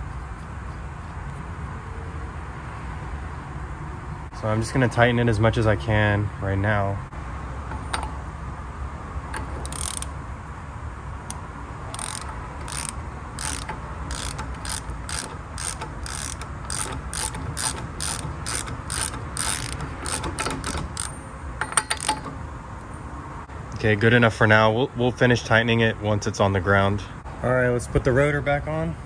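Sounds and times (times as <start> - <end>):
hand ratchet pawl clicking: 9.4 - 10.2, 11.3 - 22.4.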